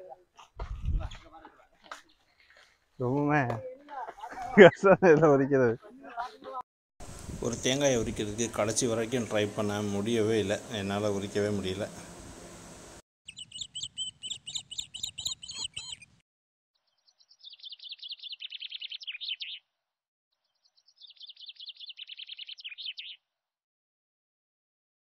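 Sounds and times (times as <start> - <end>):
bird chirping trills: 13.3 - 16.2, 16.8 - 19.7, 20.4 - 23.2.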